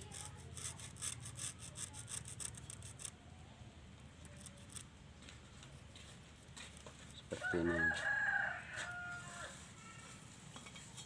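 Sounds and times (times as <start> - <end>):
scratching strokes by hand: 0.0 - 3.2.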